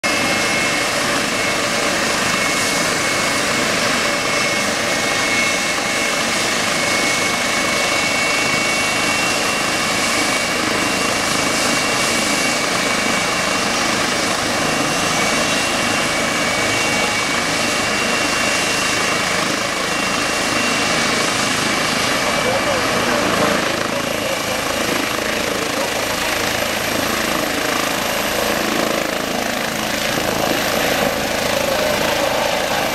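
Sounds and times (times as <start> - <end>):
helicopter turbine whine: 0.0 - 32.9
helicopter rotor turning: 0.1 - 32.9.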